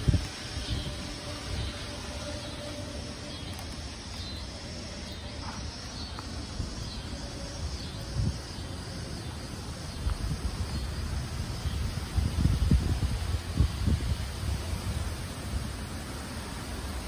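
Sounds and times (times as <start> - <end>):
wind buffeting microphone: 0.0 - 4.6, 5.2 - 17.0
wind rushing through trees: 0.0 - 17.0.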